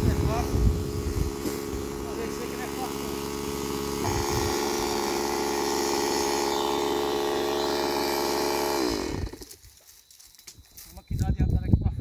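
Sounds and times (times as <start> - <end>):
chainsaw engine running: 0.0 - 9.6.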